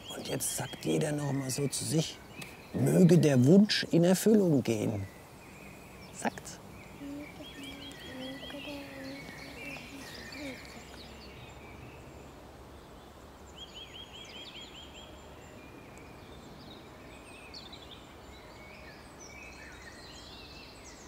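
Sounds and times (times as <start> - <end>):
low outdoor background: 0.0 - 21.0
songbirds singing: 0.0 - 21.0
bird trill: 4.9 - 11.4.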